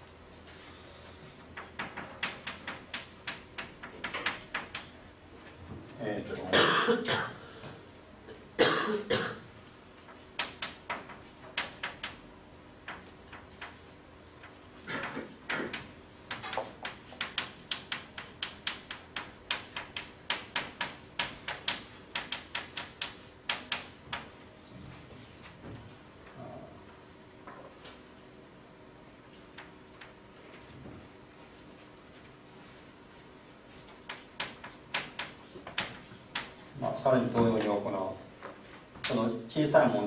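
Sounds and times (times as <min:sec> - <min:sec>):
chalk tapping and scraping: 0:15.5 - 0:24.4, 0:33.7 - 0:36.7.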